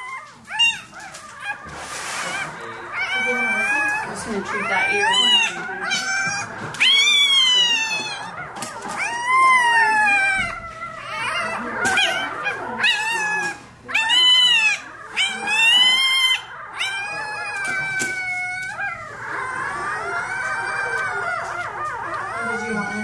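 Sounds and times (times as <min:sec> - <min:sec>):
puppy crying: 0:00.0 - 0:23.0.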